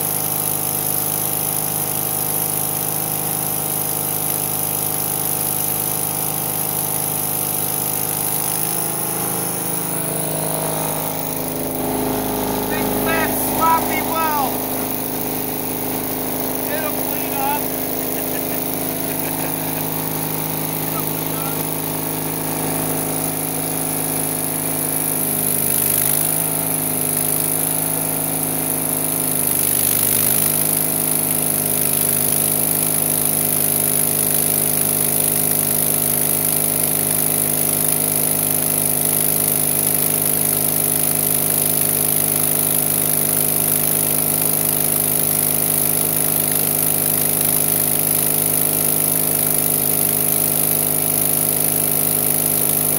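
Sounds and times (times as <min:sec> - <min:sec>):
machine hum: 0:08.0 - 0:26.6
welding arc crackling: 0:08.2 - 0:26.5.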